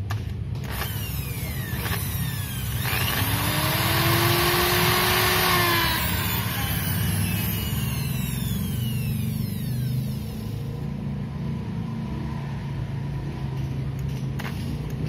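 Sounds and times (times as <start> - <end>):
electric drill boring plastic: 0.6 - 10.8.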